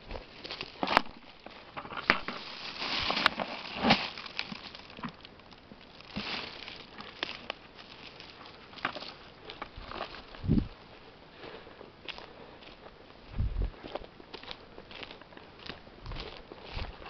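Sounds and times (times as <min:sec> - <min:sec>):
rustling of dry pine needles: 0:00.0 - 0:17.0.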